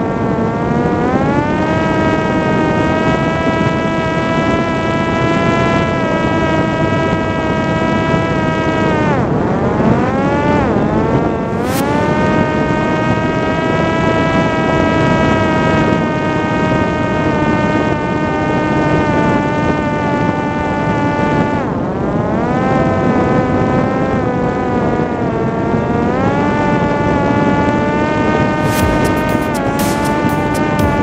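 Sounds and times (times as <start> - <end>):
electric motor and propeller whining: 0.1 - 21.6
wind rushing on airframe: 11.3 - 13.4.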